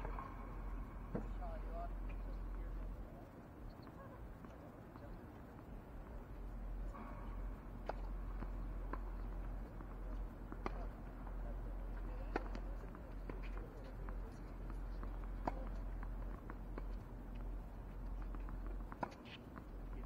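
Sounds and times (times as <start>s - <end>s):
tennis balls bouncing and struck: 5.6s - 20.0s.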